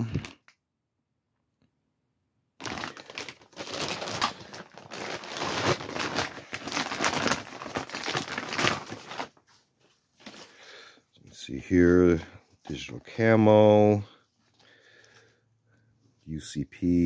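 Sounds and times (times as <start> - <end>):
plastic bag crinkling: 2.6 - 10.8.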